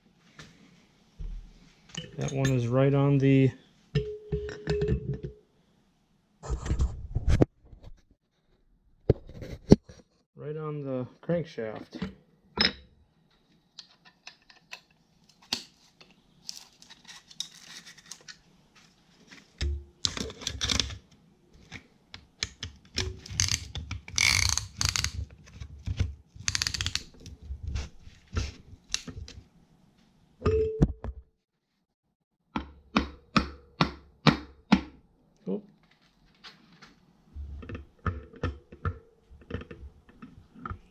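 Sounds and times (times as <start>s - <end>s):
metal clicks and rattles: 26.4s - 27.3s.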